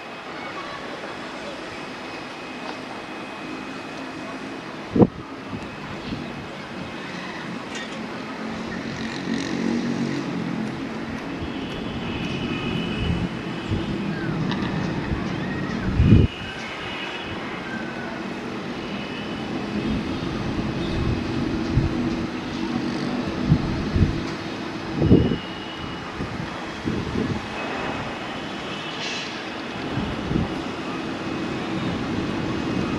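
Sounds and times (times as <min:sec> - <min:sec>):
jet engine whine: 0:00.0 - 0:32.9.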